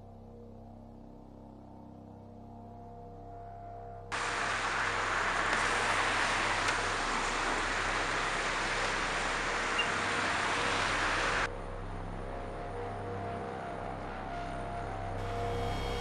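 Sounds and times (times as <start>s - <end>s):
outdoor background hiss: 4.1s - 11.5s.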